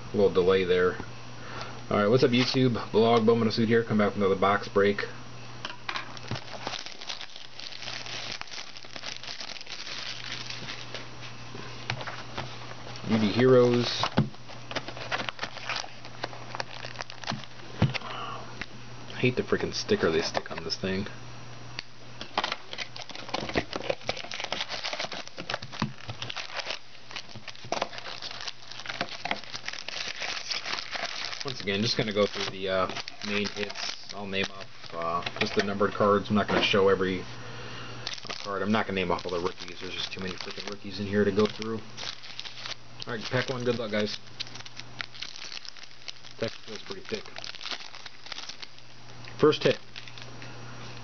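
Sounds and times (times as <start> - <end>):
shrink wrap crinkling: 6.0 - 18.2, 22.4 - 37.2, 38.0 - 51.0.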